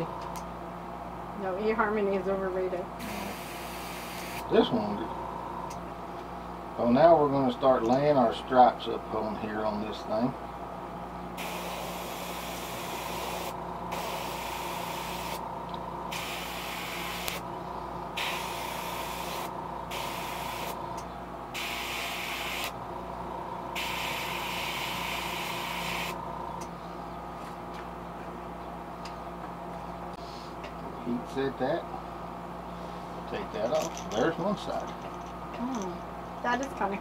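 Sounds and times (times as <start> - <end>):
steady low hum: 0.0 - 37.0
airbrush spraying hiss: 11.4 - 15.4, 16.1 - 17.4, 18.2 - 20.8, 21.6 - 22.7, 23.8 - 26.2.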